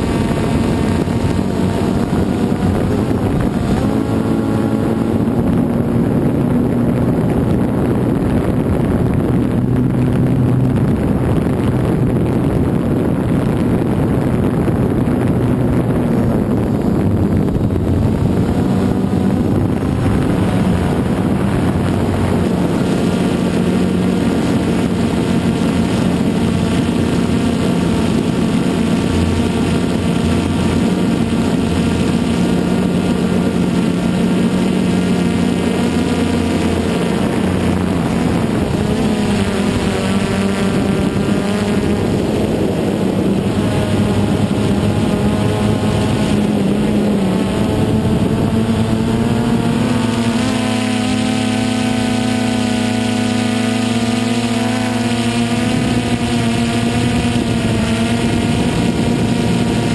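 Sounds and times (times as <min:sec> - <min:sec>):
drone propellers buzzing: 0:00.0 - 0:59.9.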